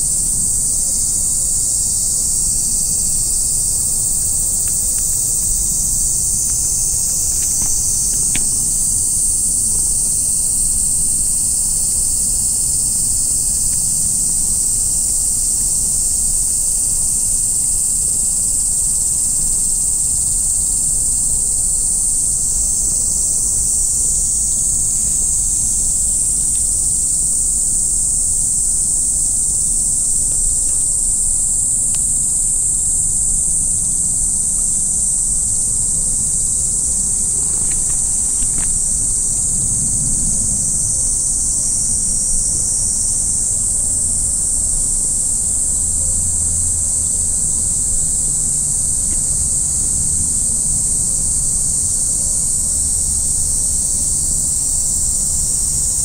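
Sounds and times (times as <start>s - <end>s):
insects shrilling: 0.0s - 15.6s, 19.8s - 45.9s
low rumble: 38.0s - 42.4s.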